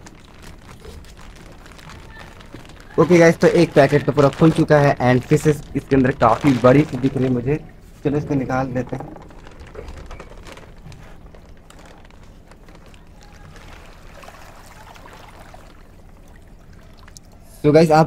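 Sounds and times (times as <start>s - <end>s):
plastic bag crinkling: 0.0s - 17.4s
water trickling and sloshing: 11.2s - 17.6s.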